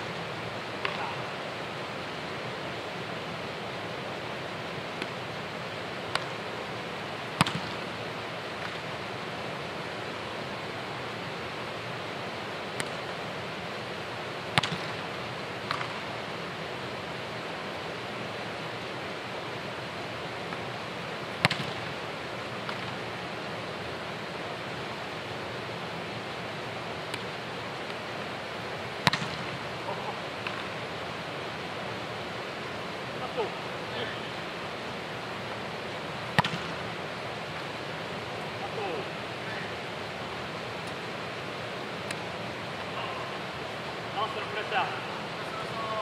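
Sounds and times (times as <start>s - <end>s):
steady rushing background noise: 0.0s - 46.0s
soccer ball thumps echoing: 7.4s - 7.8s, 14.5s - 15.0s, 21.4s - 21.9s, 29.0s - 29.6s, 36.3s - 36.8s.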